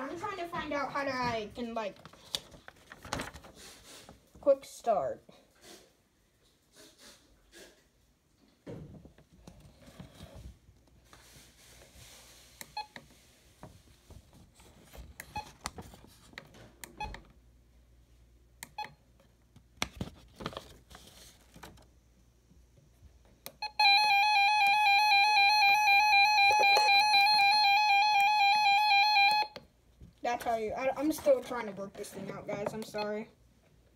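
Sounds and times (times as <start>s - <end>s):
shrill warbling alert beep: 23.7s - 29.6s.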